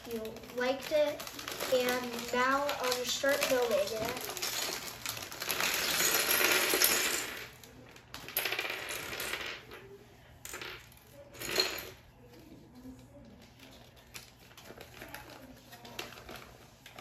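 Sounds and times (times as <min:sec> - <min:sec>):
plastic bag crinkling: 0:00.0 - 0:06.2
plastic pieces clattering on wooden floor: 0:00.1 - 0:09.7.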